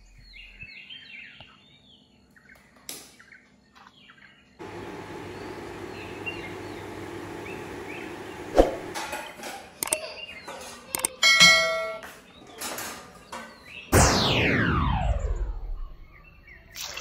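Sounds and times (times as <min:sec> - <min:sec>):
small birds chirping: 0:00.0 - 0:11.2
sharp click: 0:09.8 - 0:10.0, 0:10.9 - 0:11.2.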